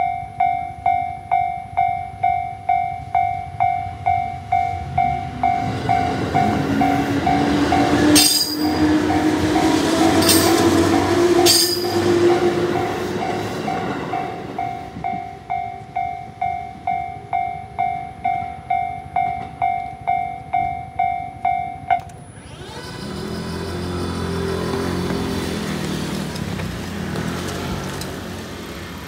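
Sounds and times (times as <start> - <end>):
level crossing bell ringing: 0.0 - 22.2.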